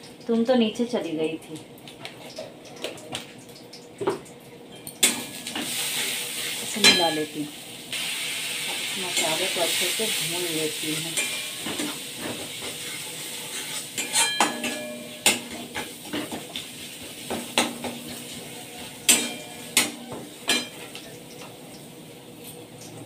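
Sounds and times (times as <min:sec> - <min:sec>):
soft sizzle: 0:00.0 - 0:23.0
spatula scraping a steel pan: 0:12.5 - 0:14.8.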